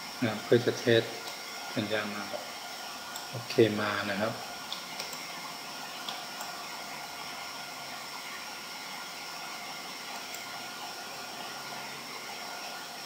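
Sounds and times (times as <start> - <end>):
steady background hiss: 0.0 - 13.0.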